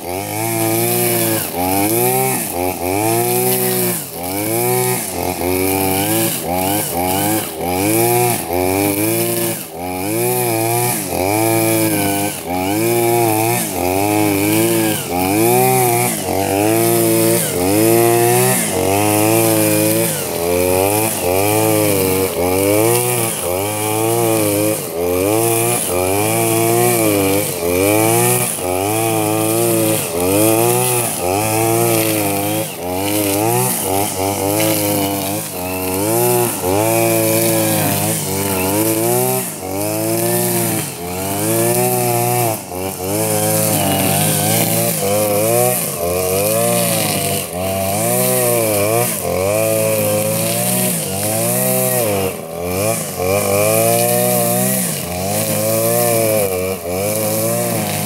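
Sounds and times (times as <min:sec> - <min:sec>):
brush cutter engine revving: 0:00.0 - 0:58.0.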